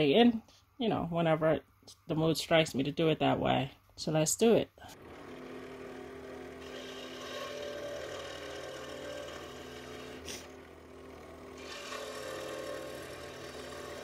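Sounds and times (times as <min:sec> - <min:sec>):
electric scroll saw cutting wood: 0:04.9 - 0:14.0.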